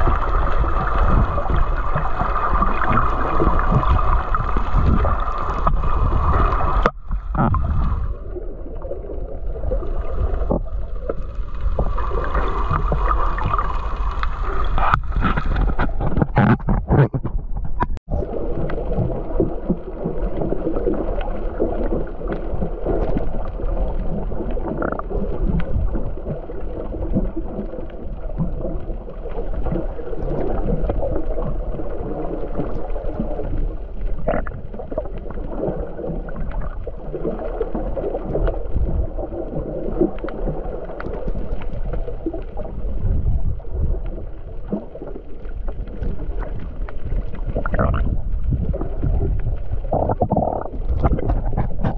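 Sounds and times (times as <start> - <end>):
knocks underwater: 0.0 - 8.1, 10.4 - 20.9, 45.8 - 51.9
muffled underwater churning: 0.0 - 51.9.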